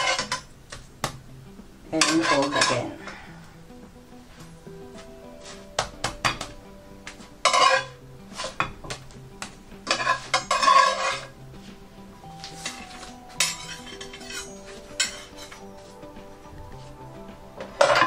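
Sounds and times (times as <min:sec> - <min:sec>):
spatula scraping a frying pan: 0:00.0 - 0:00.5, 0:01.9 - 0:03.0, 0:05.3 - 0:05.8, 0:07.4 - 0:08.8, 0:09.8 - 0:16.0, 0:17.6 - 0:18.0.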